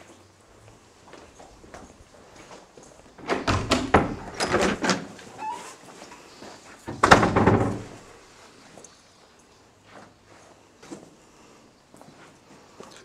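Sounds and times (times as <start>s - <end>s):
doors knocking and rattling: 3.2s - 5.6s, 6.9s - 8.1s.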